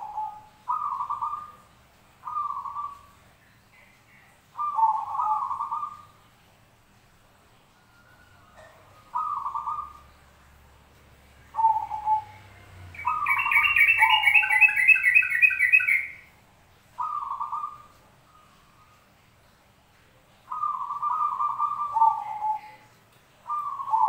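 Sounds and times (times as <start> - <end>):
dove cooing: 0.0 - 1.6, 2.2 - 3.1, 4.2 - 6.1, 8.4 - 10.1, 11.5 - 16.1, 17.0 - 19.0, 20.5 - 24.0
bird chirping: 0.0 - 6.4, 7.7 - 10.3, 11.3 - 19.6, 20.3 - 24.0.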